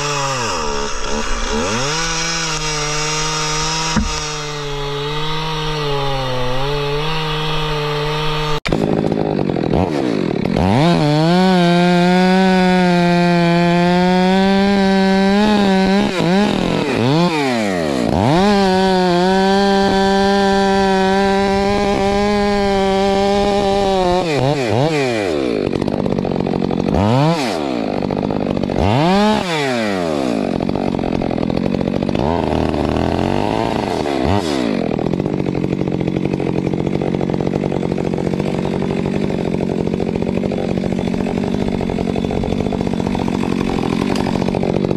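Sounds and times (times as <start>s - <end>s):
chainsaw cutting logs: 0.0s - 44.9s.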